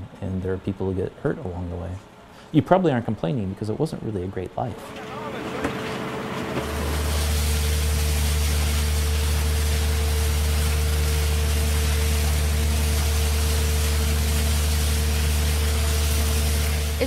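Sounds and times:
engine humming: 0:03.4 - 0:17.0.

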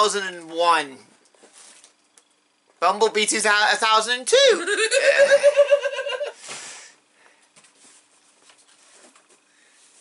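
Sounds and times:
man laughing: 0:04.4 - 0:06.4
faint rustling: 0:07.3 - 0:10.0.

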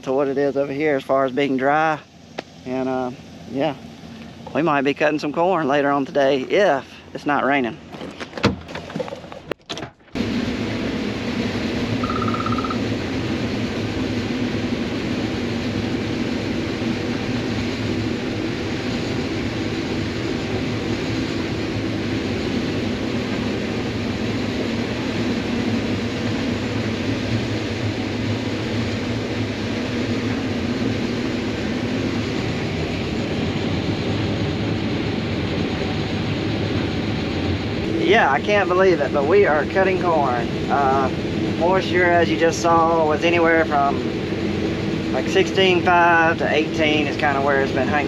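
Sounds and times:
combine harvester running: 0:00.0 - 0:48.0
short beep: 0:12.0 - 0:12.8.

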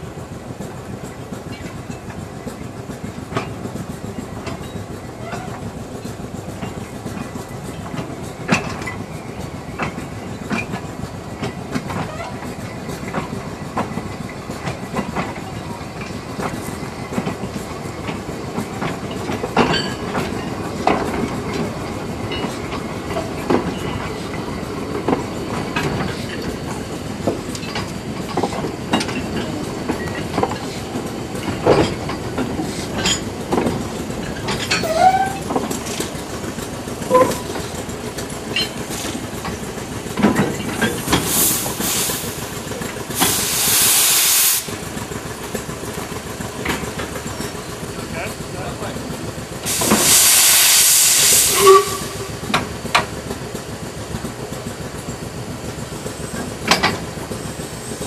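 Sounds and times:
wheels clicking over rail joints: 0:00.1 - 0:43.6, 0:44.6 - 0:50.1, 0:51.6 - 0:58.0
running gear clanking: 0:15.0 - 0:41.3.

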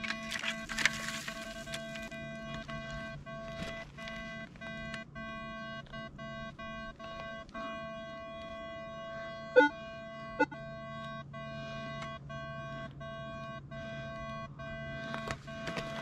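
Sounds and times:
metal detector buzzing tone: 0:09.5 - 0:10.6.

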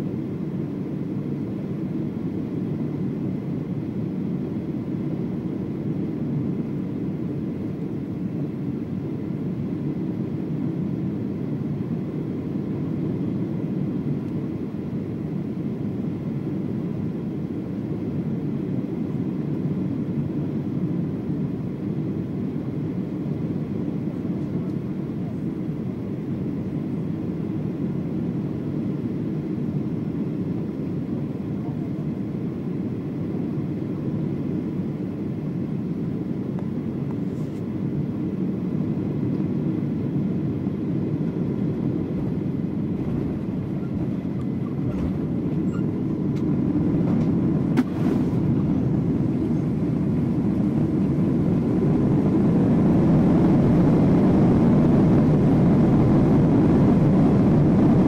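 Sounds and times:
airflow and engine rumble: 0:00.0 - 0:58.0
jet engines reverse thrust: 0:32.1 - 0:58.0.

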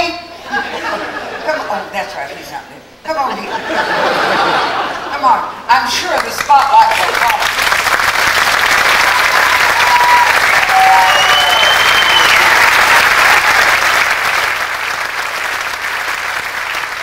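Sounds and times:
audience applauding: 0:06.5 - 0:17.0
whistle: 0:09.8 - 0:12.5.

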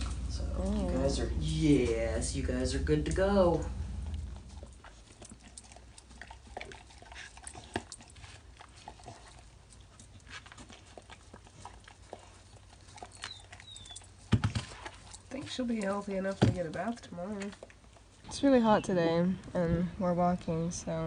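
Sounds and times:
dog lapping water: 0:04.4 - 0:18.2.

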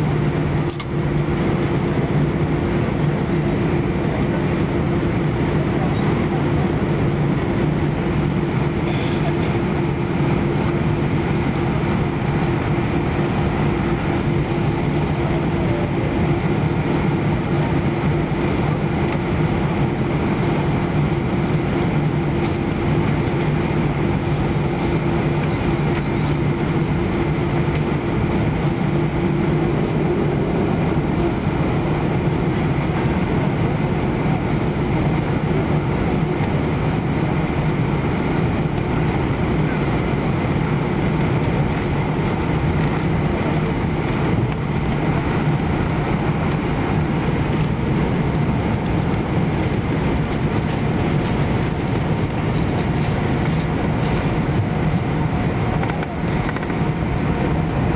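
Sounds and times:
jet engines droning: 0:00.0 - 0:57.9.

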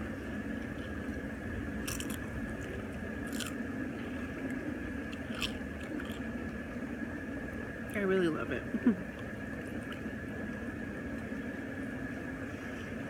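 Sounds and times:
crunching a crisp chip: 0:01.7 - 0:03.6, 0:04.2 - 0:06.3.

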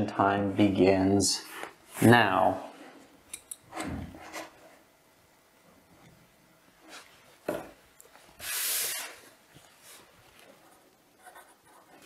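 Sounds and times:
pencil scratching on paper: 0:10.6 - 0:12.0.

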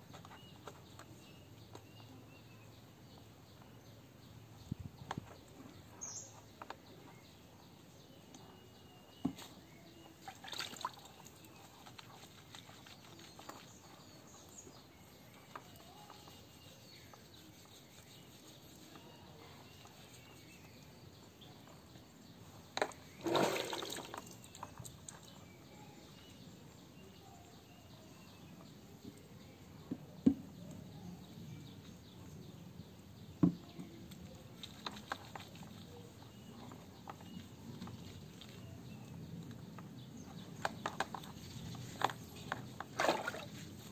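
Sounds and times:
water sloshing and dripping in tub: 0:10.2 - 0:13.6, 0:23.1 - 0:25.3, 0:42.8 - 0:43.6
water splash: 0:23.2 - 0:24.4, 0:43.0 - 0:43.5.

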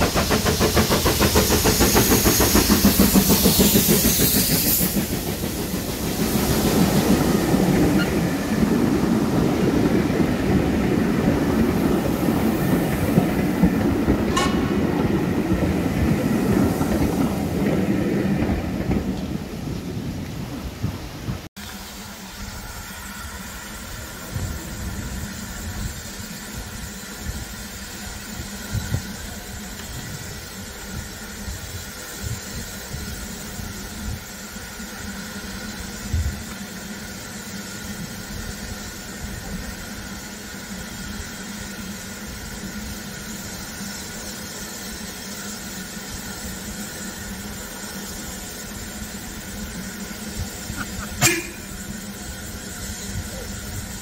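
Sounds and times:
steam locomotive hissing: 0:00.0 - 0:54.0.

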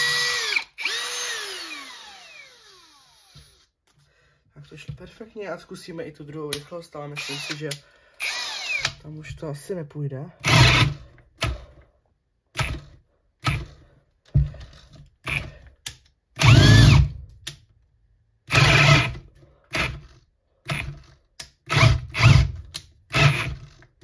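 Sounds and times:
cordless drill motor stalling: 0:00.0 - 0:03.7, 0:07.2 - 0:09.0, 0:16.4 - 0:17.1, 0:18.5 - 0:20.1, 0:21.7 - 0:22.5, 0:23.1 - 0:23.8.

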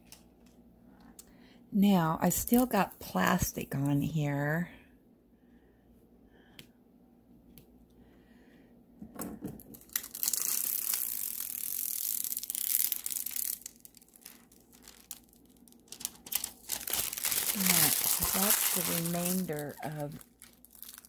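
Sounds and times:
plastic film peeling off: 0:09.7 - 0:21.0.

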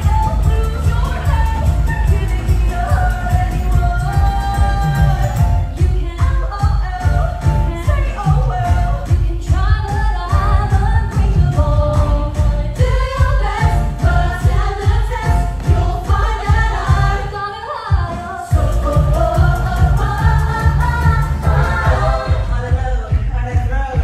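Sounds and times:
women singing pop tune: 0:00.0 - 0:23.4
heavy bass beat: 0:18.5 - 0:24.0.

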